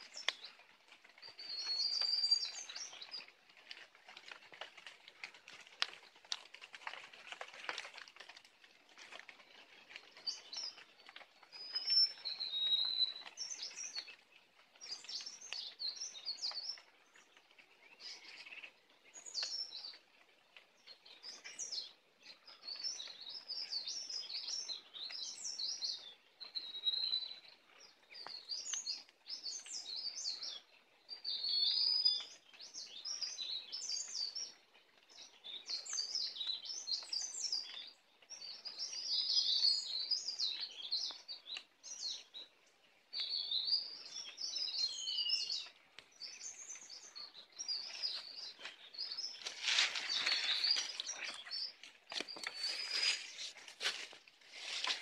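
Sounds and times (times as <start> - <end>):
songbird twittering: 1.2 - 3.3, 9.9 - 14.2, 20.8 - 42.5, 43.1 - 53.6.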